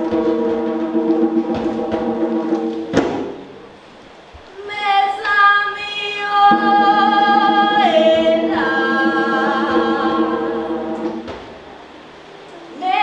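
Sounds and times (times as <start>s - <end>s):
woman singing unaccompanied: 4.5s - 11.2s, 12.6s - 13.0s
lower voice singing: 4.6s - 11.3s.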